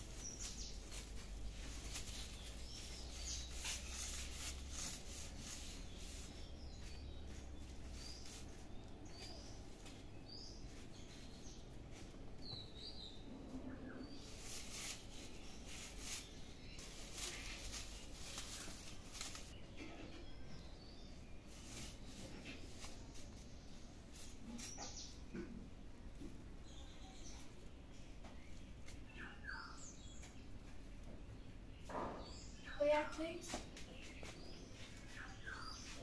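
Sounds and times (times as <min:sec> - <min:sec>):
plastic strips rustling: 0:00.0 - 0:10.0, 0:14.2 - 0:19.6
small birds chirping: 0:00.0 - 0:36.0.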